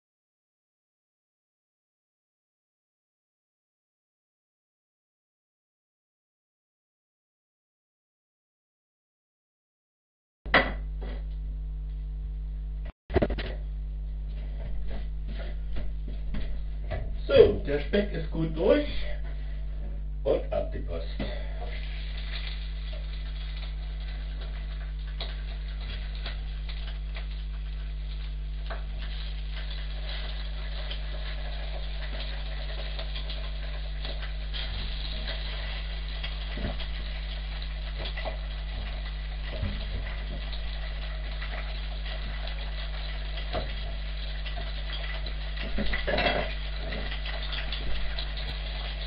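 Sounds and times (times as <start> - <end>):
low electrical hum: 10.5 - 49.0
meat sizzling in a pan: 21.3 - 49.0
kitchen utensils clattering: 44.9 - 48.6.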